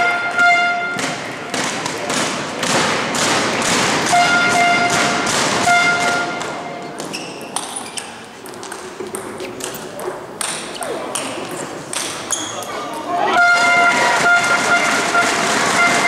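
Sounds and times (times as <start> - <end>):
horn blasts: 0.0 - 1.0, 4.1 - 6.7, 13.3 - 16.0
spectators clapping and cheering: 13.4 - 16.0.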